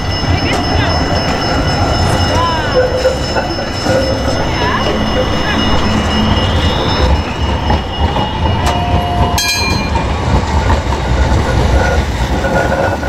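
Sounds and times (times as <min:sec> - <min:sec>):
tram wheels rumbling on rails: 0:00.0 - 0:13.0
faint wheel squeal: 0:01.9 - 0:09.4.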